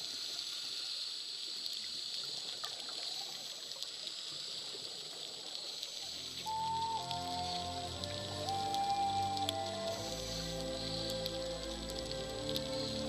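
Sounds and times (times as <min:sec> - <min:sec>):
faint ticks: 0:00.0 - 0:13.0
underwater water hiss: 0:00.0 - 0:13.0
background music: 0:06.2 - 0:13.0.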